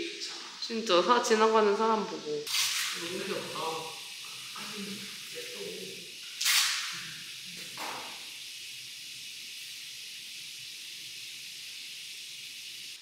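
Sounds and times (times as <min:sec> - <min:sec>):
steady high hiss: 0:00.0 - 0:13.0.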